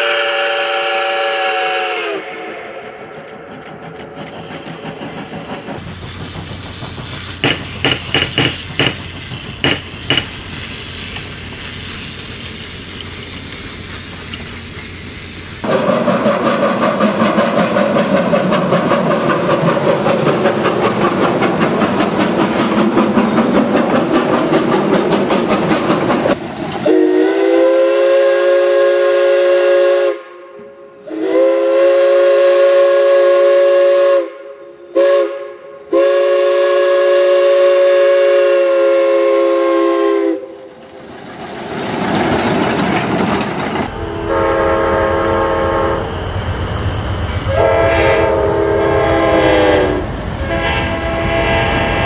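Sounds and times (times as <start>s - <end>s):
diesel locomotive air horn: 0.0s - 2.8s, 26.8s - 40.5s, 43.9s - 46.3s, 47.4s - 52.0s
steam whistle blasts: 0.0s - 2.8s, 26.8s - 40.5s, 43.9s - 52.0s
steam locomotive chuffing: 0.0s - 30.2s, 31.1s - 52.0s.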